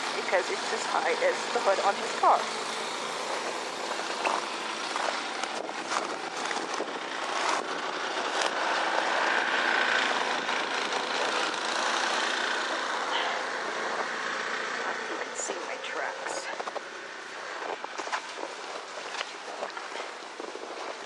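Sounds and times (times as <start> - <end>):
engine running with whine: 0.0 - 21.0
crunches: 3.2 - 15.4, 16.4 - 21.0.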